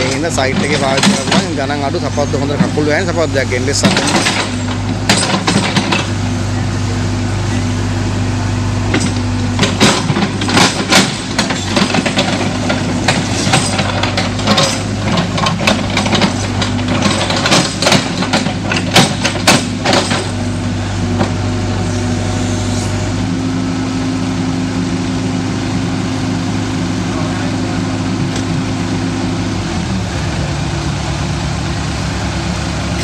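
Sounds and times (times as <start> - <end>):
excavator diesel engine running: 0.0 - 33.0
bucket clanks and knocks: 8.9 - 20.4.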